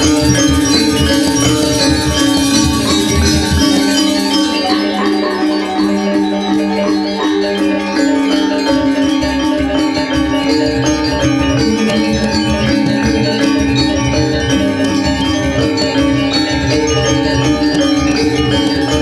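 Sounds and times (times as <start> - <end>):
hand drum strokes: 0.0 - 4.6
metallophones and small gongs ringing: 0.0 - 19.0.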